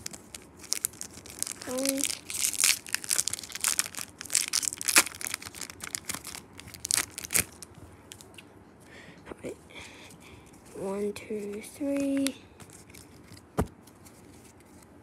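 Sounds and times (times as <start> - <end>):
foil wrapper crinkling and tearing: 0.0 - 8.4.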